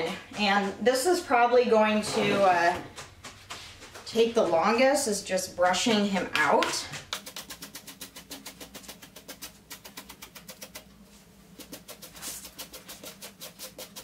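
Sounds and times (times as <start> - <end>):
brush scratching through hair: 7.0 - 14.0.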